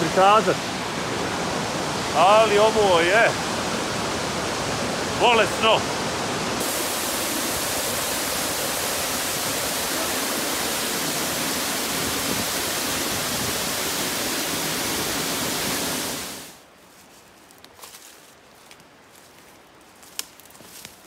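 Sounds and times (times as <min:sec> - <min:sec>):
waterfall rushing: 0:00.0 - 0:16.6.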